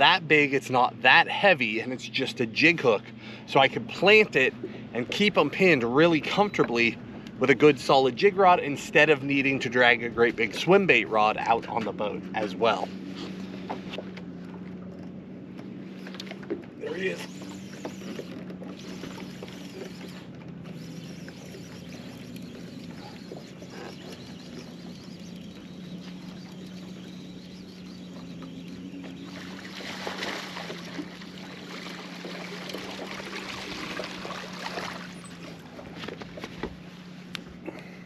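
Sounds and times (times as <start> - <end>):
trolling motor humming: 0.0 - 38.0
fish splashing in water: 17.3 - 36.0.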